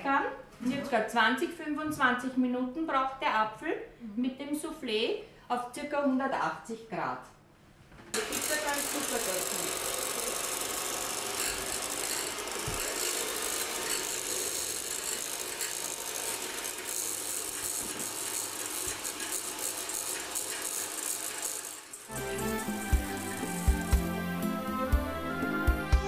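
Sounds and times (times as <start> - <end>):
electric hand mixer rattling: 8.1 - 24.5.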